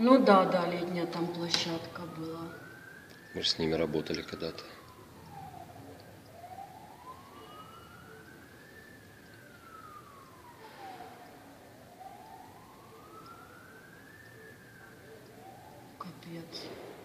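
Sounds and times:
faint siren wailing: 0.0 - 17.0.

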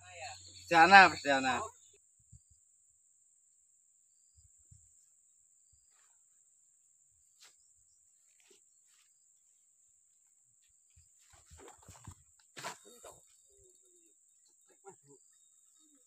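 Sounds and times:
high-pitched insect drone: 0.0 - 6.1.

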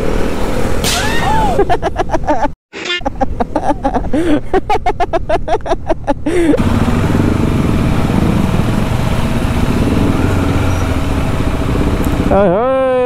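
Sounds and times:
wind and road noise: 0.0 - 13.0
motorcycle engine hum: 3.3 - 13.0.

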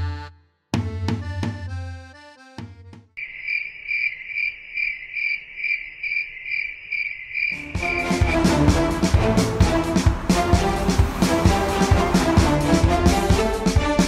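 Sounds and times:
crickets chirping: 3.2 - 8.4
short music phrase: 7.6 - 14.0.

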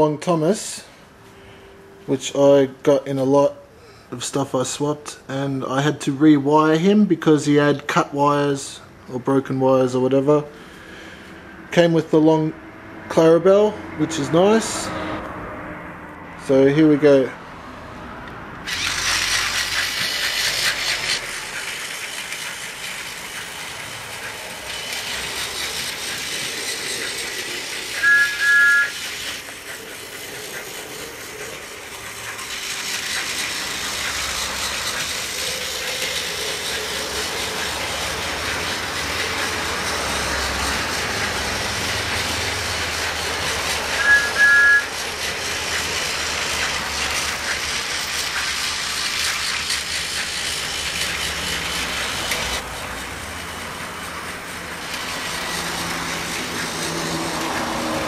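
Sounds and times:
toy train motor whirring: 18.6 - 58.0
electronic toy whistle toot: 27.9 - 29.3, 43.9 - 45.0.

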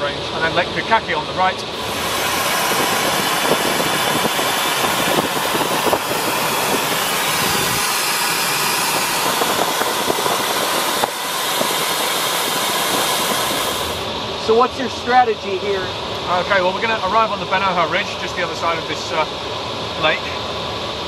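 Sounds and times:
airflow hissing over glider: 1.7 - 14.2.

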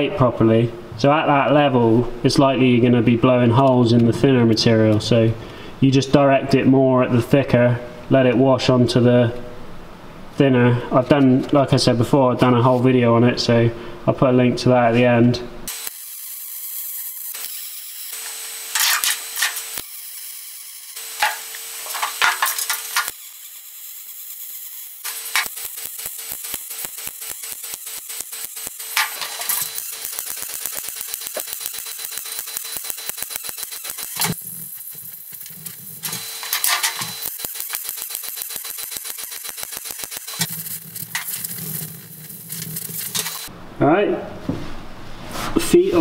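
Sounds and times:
welder arc crackling and hissing: 15.7 - 43.5
steady hum: 24.8 - 45.0.

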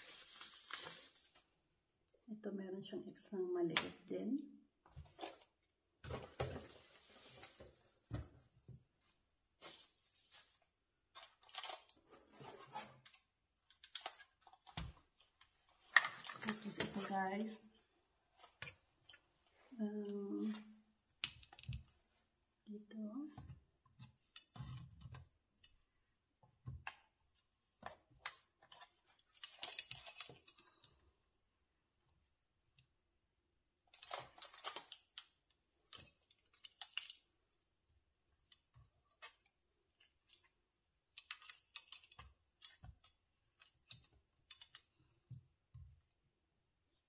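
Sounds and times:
rustling: 0.0 - 1.5
plastic parts clicking: 13.0 - 16.9, 28.2 - 30.9, 33.9 - 37.3, 41.1 - 45.0.

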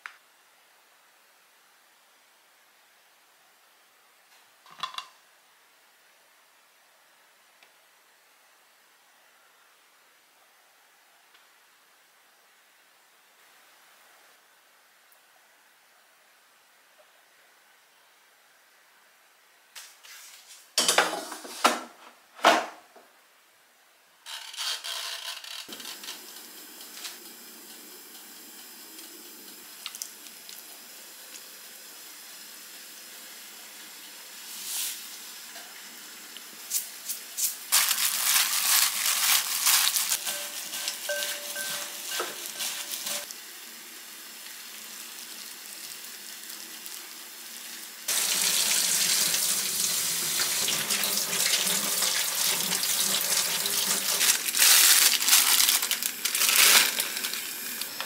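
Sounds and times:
wooden spoon mixing in glass bowl: 40.0 - 43.2
clinks and scraping: 40.2 - 43.3.

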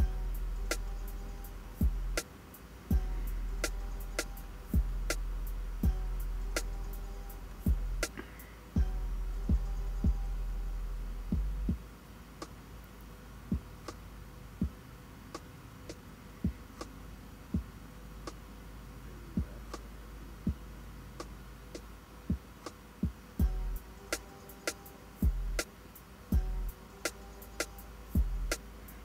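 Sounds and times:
low bass hum: 0.0 - 2.2, 2.9 - 8.2, 8.8 - 11.8, 23.4 - 24.0, 25.2 - 25.6, 26.3 - 26.8, 27.9 - 29.0
deep drum-like thumps: 1.8 - 2.2, 2.9 - 6.7, 7.6 - 8.1, 8.8 - 10.2, 11.3 - 11.8, 22.3 - 23.8, 25.2 - 25.6, 26.3 - 26.8, 28.2 - 28.6.

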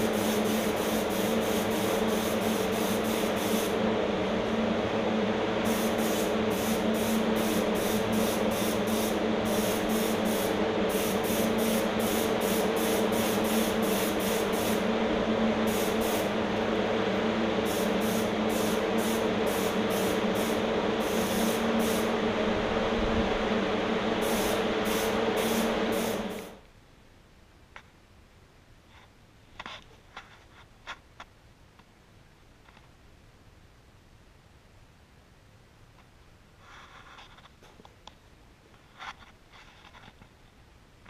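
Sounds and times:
spray gun hissing bursts: 0.0 - 4.6, 5.5 - 22.4, 23.5 - 26.6
air compressor humming: 0.0 - 26.6.

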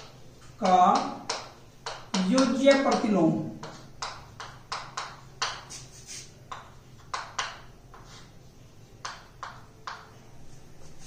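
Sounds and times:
chalk tapping on chalkboard: 0.0 - 10.2.

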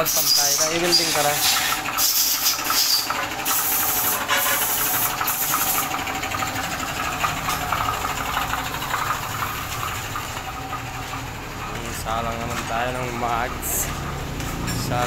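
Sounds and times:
angle grinder grinding steel: 0.0 - 8.1
grinder motor running: 0.0 - 15.0.

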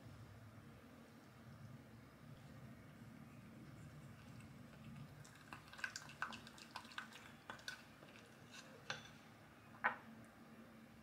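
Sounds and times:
wet squishing batter: 2.4 - 9.2.

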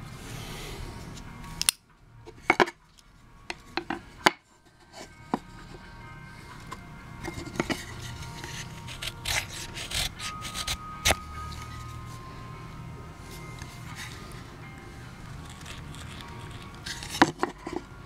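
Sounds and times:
steady background noise: 0.0 - 18.0
wooden pieces knocking on table: 3.8 - 4.4.

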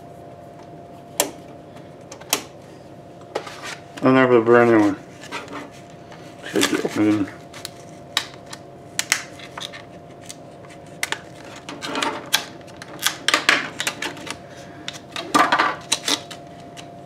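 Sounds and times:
plastic packaging clicks and snaps: 7.6 - 10.4.

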